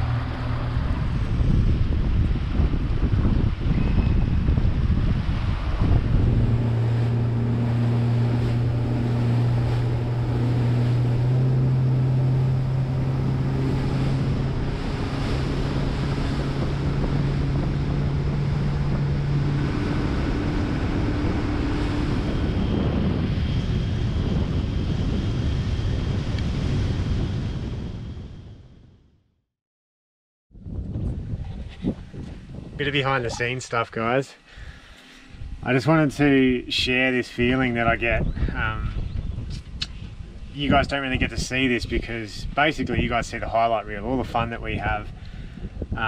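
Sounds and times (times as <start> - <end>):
water rushing past hull: 0.0 - 27.7
motorboat engine hum: 0.0 - 28.9, 30.6 - 46.0
wind buffeting microphone: 0.0 - 29.0, 30.5 - 46.0.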